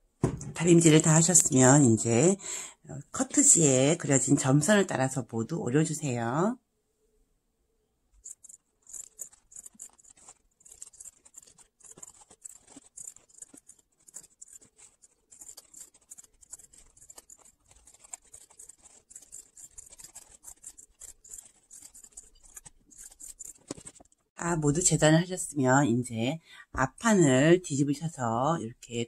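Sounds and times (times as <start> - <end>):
scissors snipping fabric: 8.2 - 24.1.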